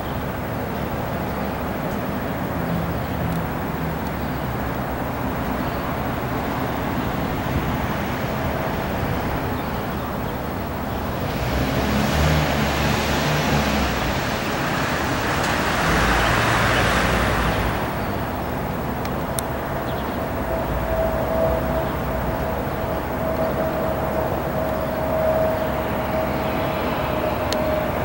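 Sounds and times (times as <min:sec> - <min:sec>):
jet engine roar: 0:05.9 - 0:28.0.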